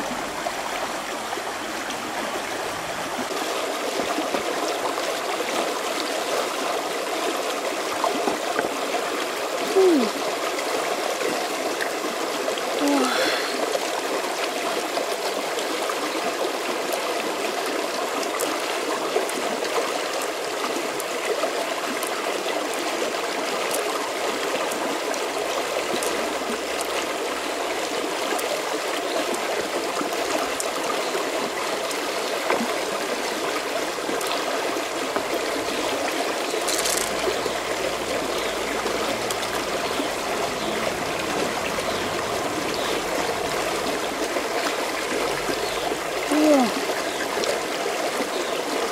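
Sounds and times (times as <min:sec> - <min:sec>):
river rushing and trickling: 0:00.0 - 0:48.9
small clicks: 0:36.6 - 0:37.3.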